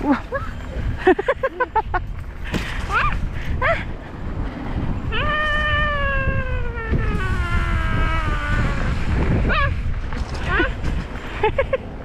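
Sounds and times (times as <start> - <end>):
wind and riding noise rumble: 0.0 - 12.0
child's drawn-out vocal call: 5.1 - 9.7.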